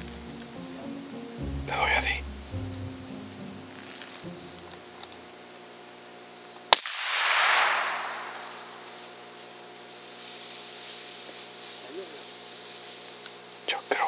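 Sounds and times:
steady high-pitched whine: 0.0s - 6.2s
rifle shot: 6.7s - 8.7s.

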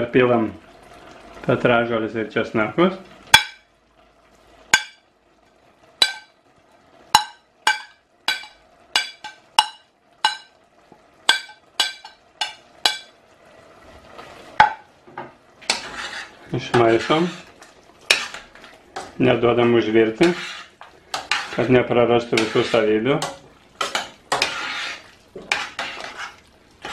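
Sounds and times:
utensil clinking on steel pot: 6.0s - 6.3s, 7.1s - 10.6s, 11.3s - 13.1s, 22.4s - 26.9s.

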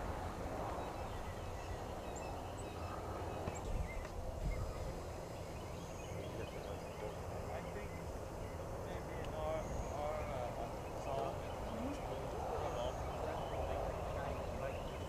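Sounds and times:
wind rumble on microphone: 0.0s - 7.9s.

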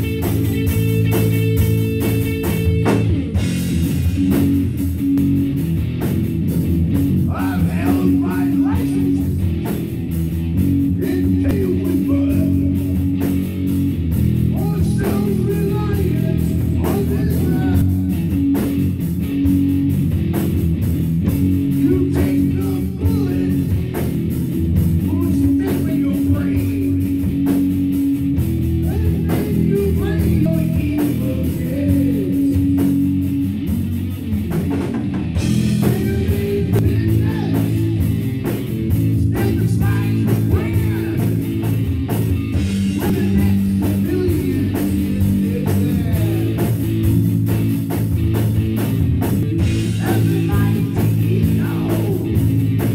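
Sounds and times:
drum-kit beat: 0.0s - 52.9s
guitar: 0.0s - 52.9s
rock band playing: 0.0s - 52.9s.

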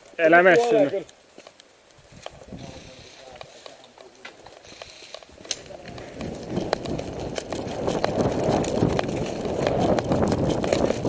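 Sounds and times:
footsteps running on rough ground: 0.0s - 11.0s
rustling: 0.0s - 11.0s
sharp cracks and clicks: 0.0s - 11.0s.

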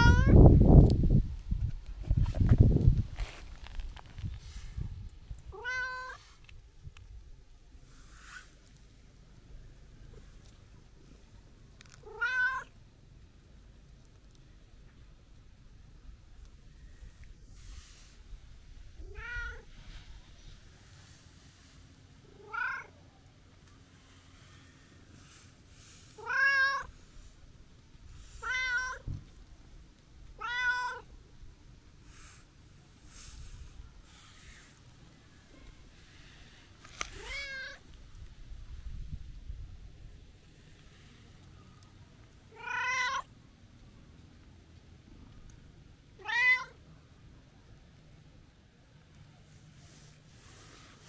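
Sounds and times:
cat meowing: 0.0s - 0.4s, 5.5s - 6.2s, 12.0s - 12.7s, 19.0s - 19.7s, 22.4s - 23.0s, 26.2s - 26.9s, 28.4s - 29.0s, 30.4s - 31.1s, 37.1s - 37.8s, 42.5s - 43.3s, 46.2s - 46.8s.

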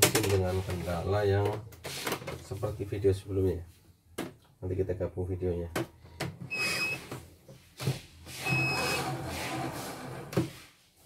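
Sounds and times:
embroidery machine beeping: 6.5s - 7.1s, 8.4s - 9.2s.

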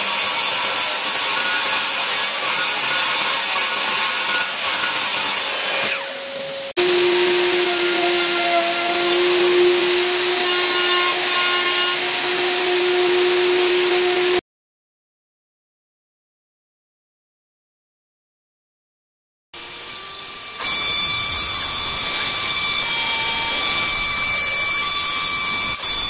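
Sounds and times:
router whining: 0.0s - 14.4s, 19.6s - 26.0s
table saw cutting board: 0.0s - 14.4s, 19.6s - 26.0s.

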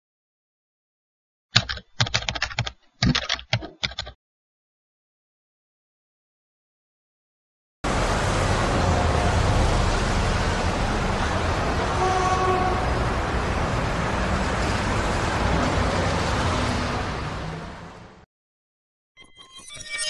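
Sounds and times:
street traffic: 7.8s - 18.3s
vehicle horn tooting: 11.9s - 13.0s.

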